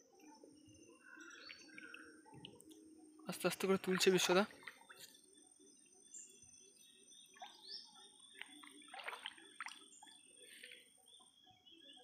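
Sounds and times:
water sloshing and dripping: 1.3s - 6.0s, 7.3s - 11.2s
short water splashes: 3.6s - 5.1s, 8.3s - 10.0s.

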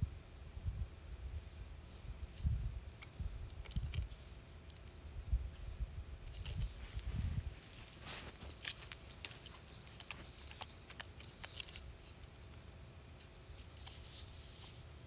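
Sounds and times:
low steady rumble: 0.0s - 15.0s
faint scattered clicks: 2.2s - 5.1s, 5.7s - 14.8s
scratchy rustles: 6.2s - 15.0s.

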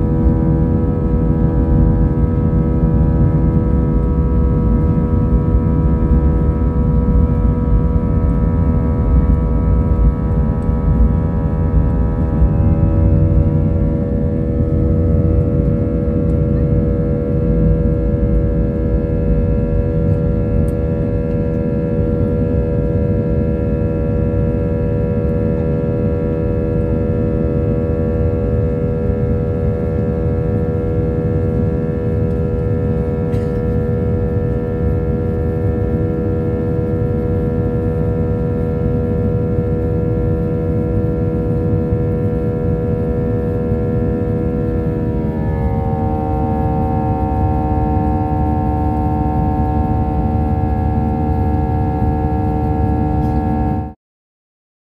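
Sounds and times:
jet engine drone with whining tones: 0.0s - 54.0s.

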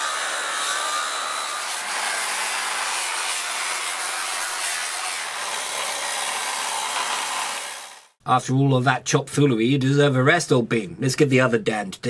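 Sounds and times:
angle grinder cutting steel: 0.0s - 8.2s.

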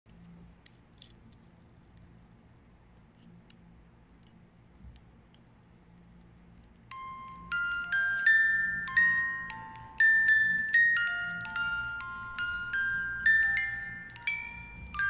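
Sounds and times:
low steady hum: 0.1s - 15.0s
fingers clicking on wooden music box: 6.6s - 15.0s.

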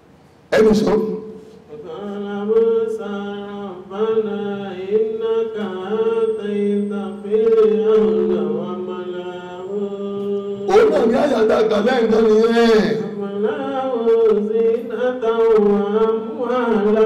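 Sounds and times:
man chanting melodically: 0.5s - 17.0s.

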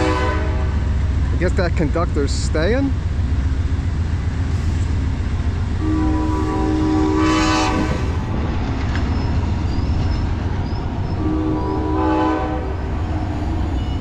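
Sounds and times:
locomotive horn: 0.0s - 1.0s, 5.8s - 8.3s, 11.1s - 13.0s
train cars rumbling past: 0.0s - 14.0s.

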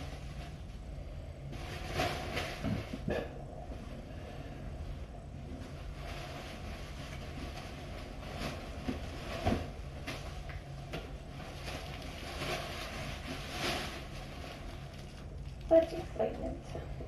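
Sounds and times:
steady low hum: 0.0s - 17.0s
fabric and paper rustling: 5.5s - 16.6s.

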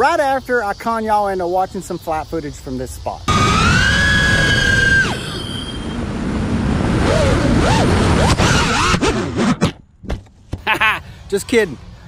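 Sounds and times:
wind rush: 3.3s - 9.3s
drone motors whining: 3.3s - 9.7s.

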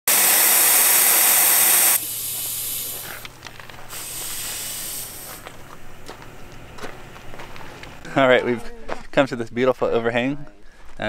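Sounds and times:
air hissing out of a tyre: 0.1s - 5.6s.

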